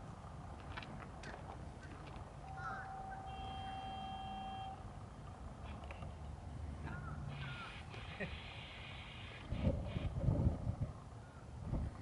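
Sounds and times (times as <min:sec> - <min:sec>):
vehicle horn: 0:02.4 - 0:04.9.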